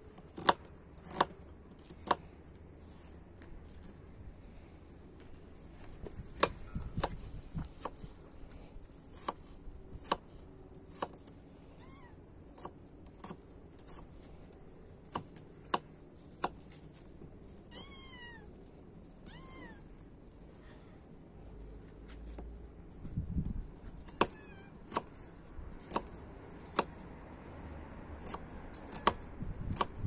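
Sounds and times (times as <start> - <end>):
knife chopping on wooden board: 0.4 - 1.3, 6.3 - 8.0, 9.1 - 10.3, 10.9 - 11.2, 25.8 - 27.0
cat meowing: 11.8 - 12.2, 17.7 - 18.5, 19.2 - 20.0, 24.1 - 24.8.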